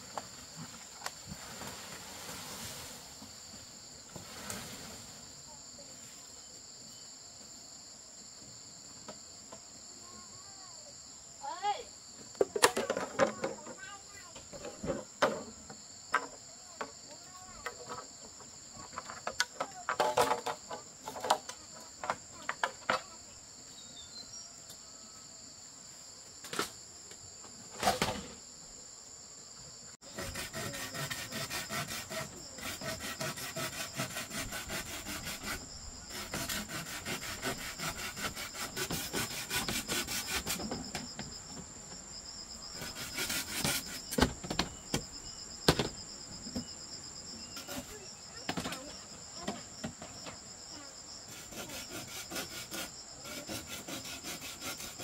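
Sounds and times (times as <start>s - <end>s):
insects buzzing: 0.0s - 55.0s
knocks and scrapes on wood: 12.3s - 23.1s, 30.1s - 42.0s, 42.8s - 45.1s, 45.7s - 46.7s, 47.5s - 50.4s
rapid rasping strokes: 30.0s - 40.7s, 42.8s - 44.2s, 51.3s - 55.0s.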